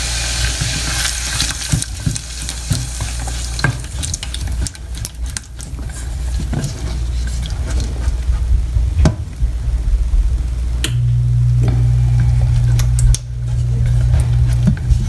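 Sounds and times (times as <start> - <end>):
steady low hum: 0.0 - 15.0
spatula scraping saucepan: 0.5 - 8.5, 12.2 - 15.0.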